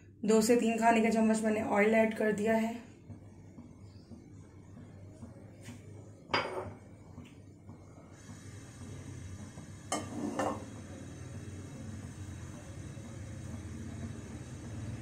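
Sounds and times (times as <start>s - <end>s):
dishes and utensils clinking: 6.3s - 6.8s, 9.9s - 10.7s.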